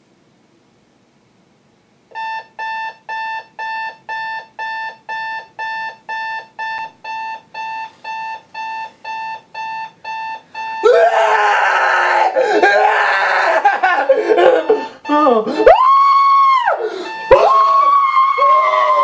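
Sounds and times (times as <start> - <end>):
alarm clock beeping: 2.1 - 10.9, 14.1 - 19.0.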